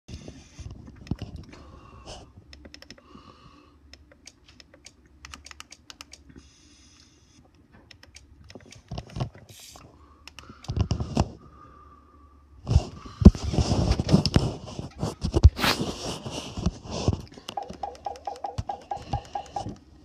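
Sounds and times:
touchpad buttons clicking: 2.5s - 3.0s, 3.9s - 6.2s, 17.5s - 19.8s.

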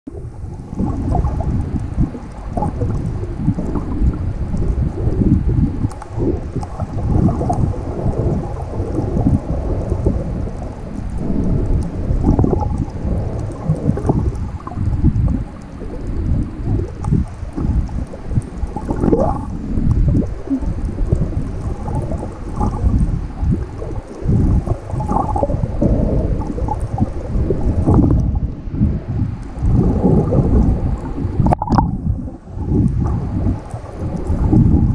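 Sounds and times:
muffled underwater rumbling: 0.1s - 34.9s.

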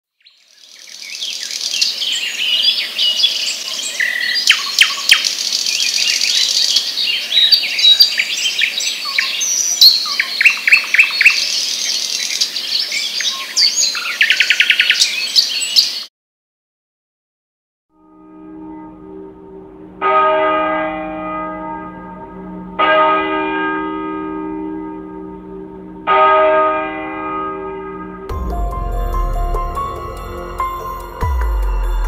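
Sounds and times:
birds chirping and calling: 0.3s - 16.0s.

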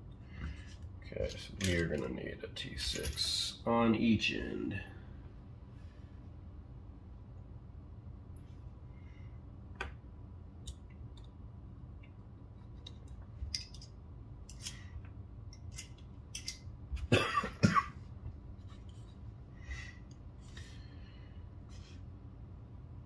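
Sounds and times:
screwdrivers clicking and tapping: 12.8s - 13.9s, 15.5s - 16.6s
person coughing: 17.1s - 18.0s.

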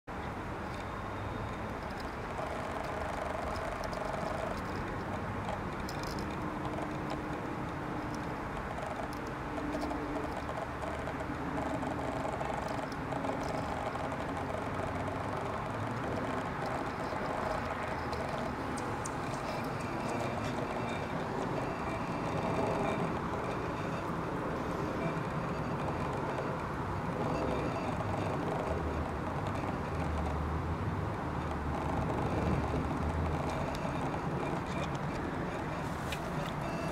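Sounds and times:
outdoor background noise: 0.1s - 36.9s
faint humming tones: 0.2s - 36.9s.

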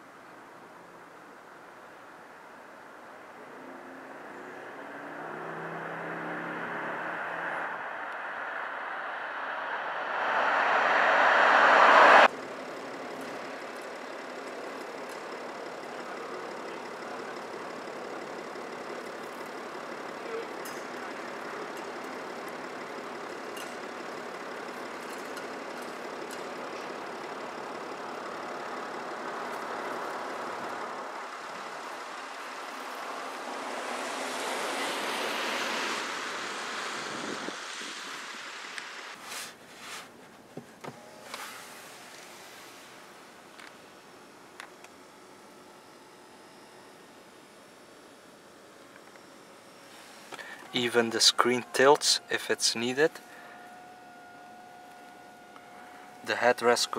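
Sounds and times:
road traffic noise: 0.0s - 56.9s
vehicle passing: 3.6s - 12.3s.

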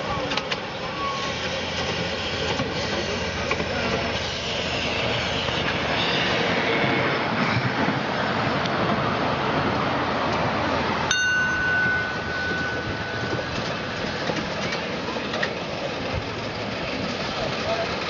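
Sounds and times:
train wheels rolling on track: 0.0s - 18.0s
metallic bell ding: 11.1s - 14.4s.

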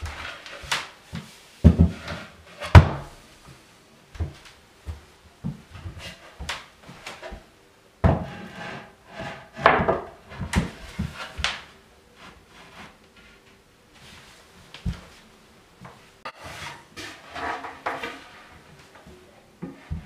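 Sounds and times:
wooden panels knocking and scraping: 0.0s - 3.2s, 4.2s - 11.7s, 16.3s - 18.7s.

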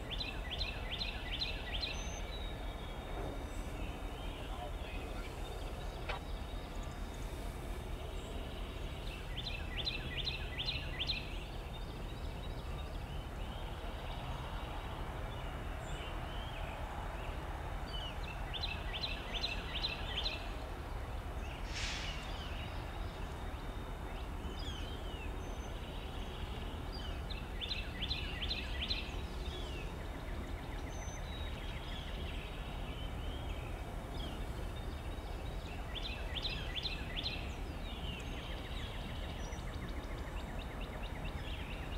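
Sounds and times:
short hiss: 21.6s - 22.6s.

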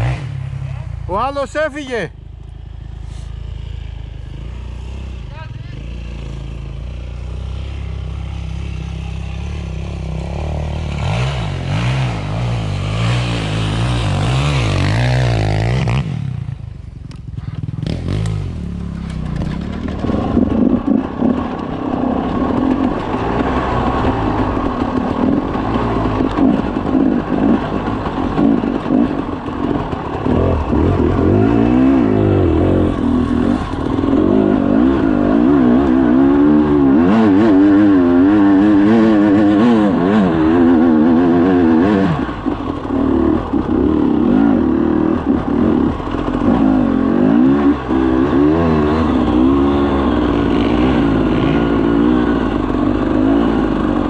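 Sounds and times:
dirt bike engine revving: 0.0s - 1.3s, 2.6s - 16.8s, 17.4s - 54.0s
bike clattering over bumps: 19.0s - 34.3s.

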